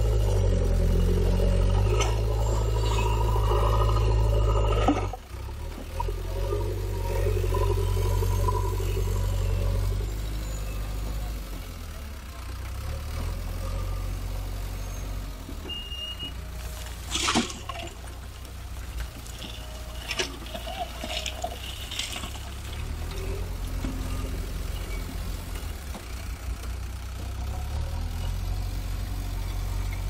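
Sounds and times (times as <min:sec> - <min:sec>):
diesel engine running hard: 0:00.0 - 0:30.0
soil tipping from bucket: 0:17.1 - 0:18.0, 0:19.4 - 0:23.0.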